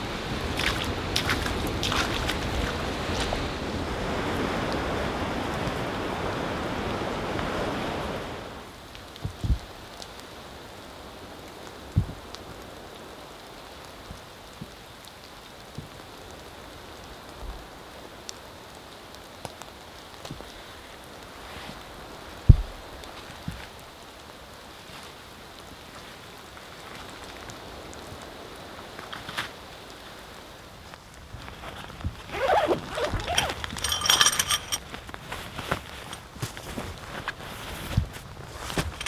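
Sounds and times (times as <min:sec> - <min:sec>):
rain hiss: 0:00.0 - 0:39.0
soft thumps: 0:22.5 - 0:22.8.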